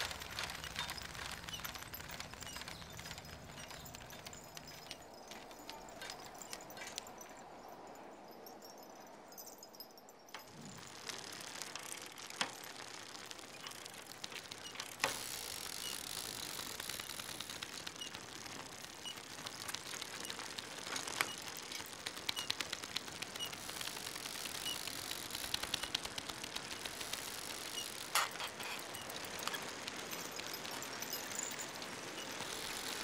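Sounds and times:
bicycle freewheel ticking: 0.0s - 6.7s, 10.7s - 33.0s
steady hiss: 10.4s - 33.0s.

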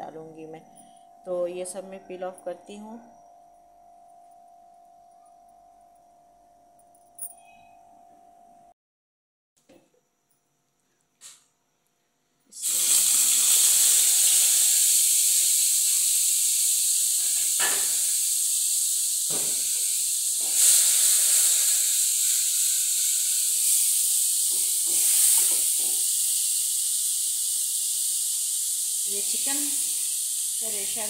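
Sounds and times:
fat sizzling in a hot pan: 12.6s - 31.0s.

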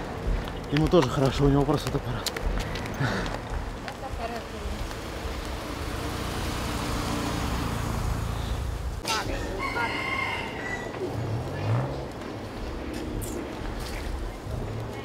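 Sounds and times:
rooster crowing: 9.1s - 11.2s
steady rushing noise: 11.0s - 15.0s.

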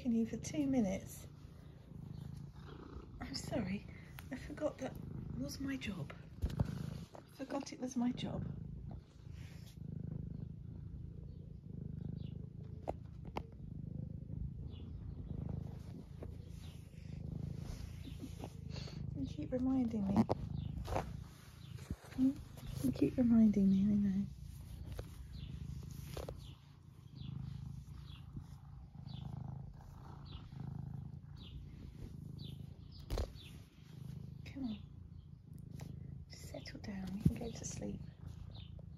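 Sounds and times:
cat purring: 0.0s - 38.9s.

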